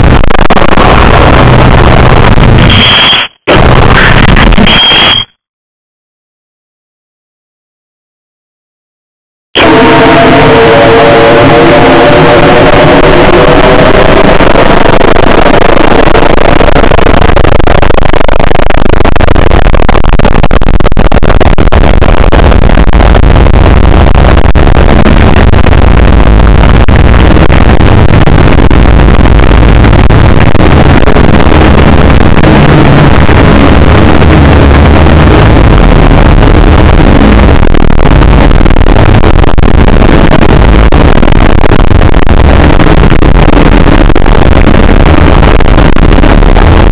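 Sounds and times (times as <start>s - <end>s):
distorted noise with bass rumble: 0.0s - 5.4s, 9.6s - 46.9s
held pitched tone: 2.6s - 5.3s.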